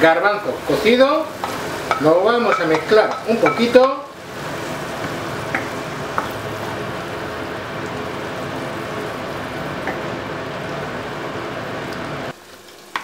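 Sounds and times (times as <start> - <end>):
food sizzling in a frying pan: 0.0 - 13.0
wooden spoon stirring: 0.7 - 10.2.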